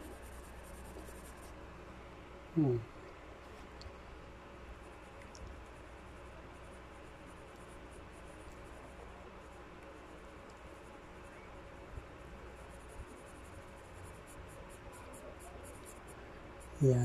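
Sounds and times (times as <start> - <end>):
pencil scratching on paper: 0.0 - 1.5, 12.0 - 16.8.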